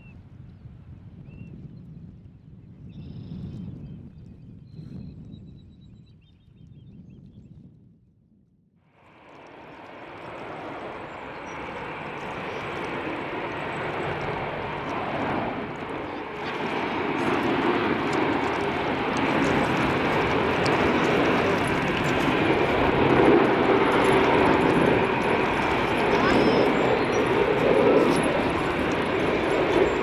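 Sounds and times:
jet engines rumbling: 9.0s - 30.0s.

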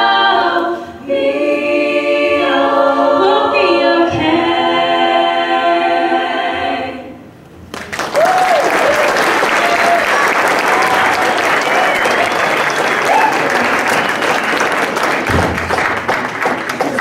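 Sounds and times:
women singing a held chord: 0.0s - 7.2s
audience applause: 7.7s - 17.0s.

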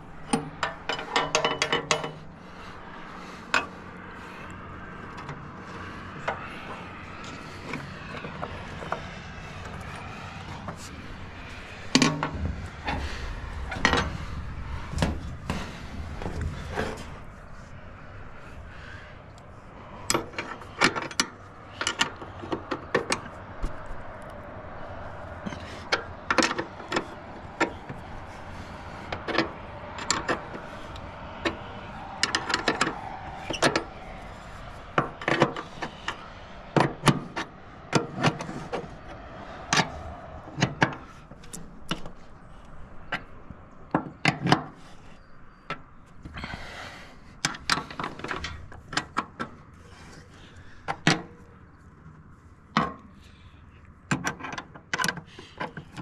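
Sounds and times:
wrench clinking on metal: 0.3s - 2.2s.

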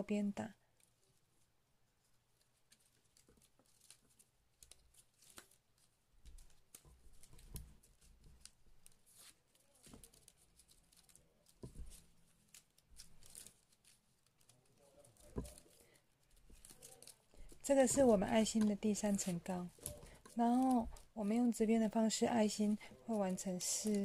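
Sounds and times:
plastic ribbon ticks and rustles: 0.6s - 24.0s
soft handling bumps: 16.4s - 21.2s.

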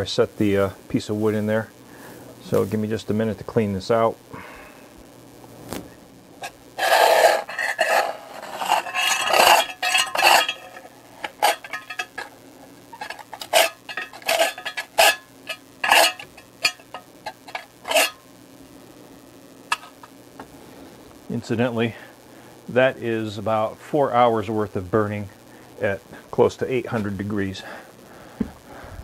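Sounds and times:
metal tool scraping metal: 6.4s - 18.2s, 19.7s - 20.1s
metal clinks and taps: 9.6s - 12.3s.

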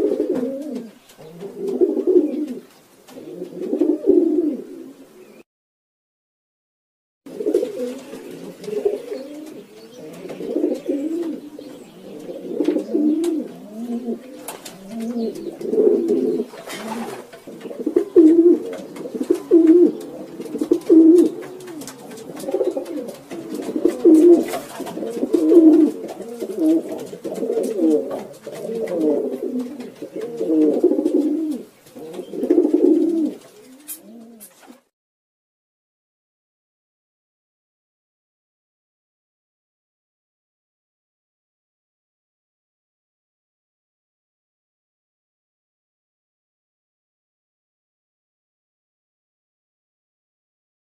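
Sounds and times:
pigeons cooing: 0.0s - 5.4s, 7.3s - 34.9s.

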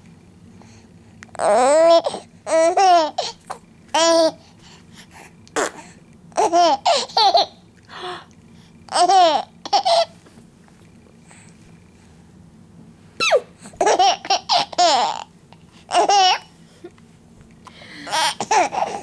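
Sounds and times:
baby laughing and babbling: 1.4s - 4.4s, 5.6s - 7.6s, 8.9s - 10.2s, 13.2s - 16.6s, 17.9s - 19.0s.

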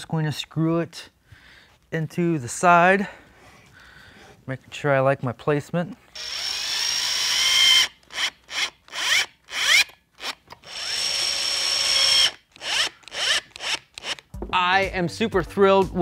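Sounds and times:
drill driving screws: 6.2s - 14.3s.

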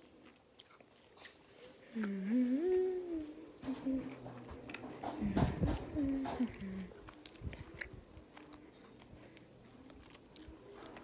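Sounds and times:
girl humming: 1.9s - 4.2s, 5.9s - 7.0s.

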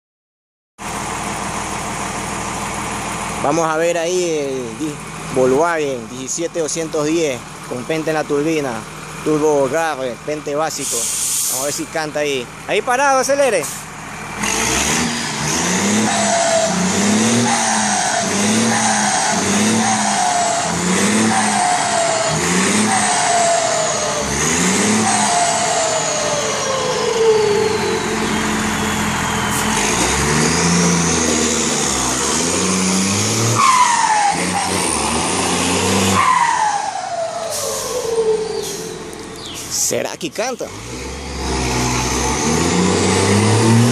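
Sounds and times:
diesel engine revving: 0.8s - 43.9s
falling turbo whistle: 36.1s - 39.1s.

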